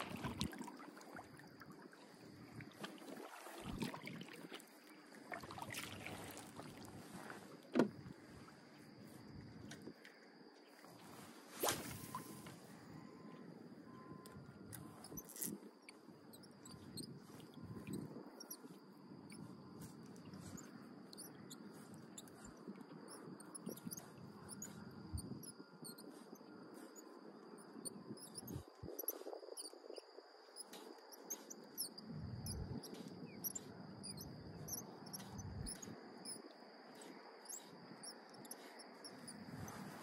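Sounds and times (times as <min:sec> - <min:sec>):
high-pitched insect drone: 0:11.8 - 0:40.0.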